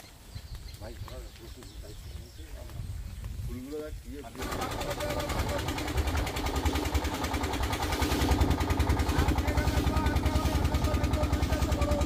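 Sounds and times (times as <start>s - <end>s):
boat engine chugging: 4.4s - 12.0s.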